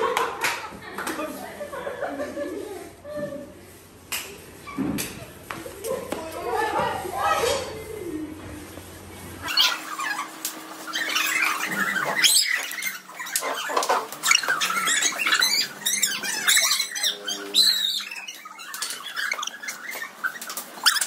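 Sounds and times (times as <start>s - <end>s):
people shrieking and squealing: 9.4s - 21.0s
shoes squeaking on tiled floor: 9.4s - 21.0s.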